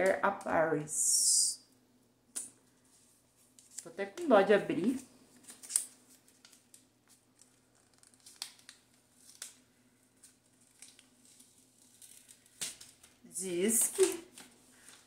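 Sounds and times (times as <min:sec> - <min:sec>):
package wrapping crinkling: 0:04.8 - 0:15.0.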